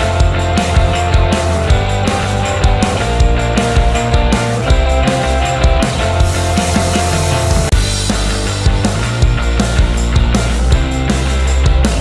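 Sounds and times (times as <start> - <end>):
rock music with drum beat: 0.0 - 12.0.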